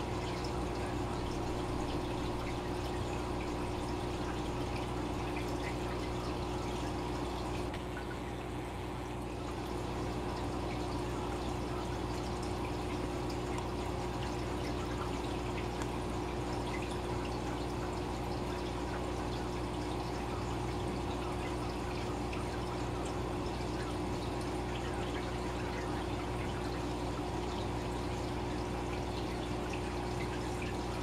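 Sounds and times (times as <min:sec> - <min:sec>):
aquarium air bubbling: 0:00.0 - 0:31.0
steady low hum: 0:00.0 - 0:31.0.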